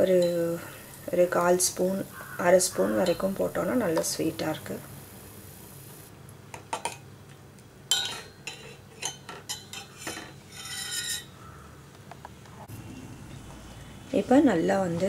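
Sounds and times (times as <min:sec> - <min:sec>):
water boiling in pot: 0:00.0 - 0:06.1
metal ladle clinking on pot: 0:07.9 - 0:11.3
ladle scraping pot: 0:08.0 - 0:11.3.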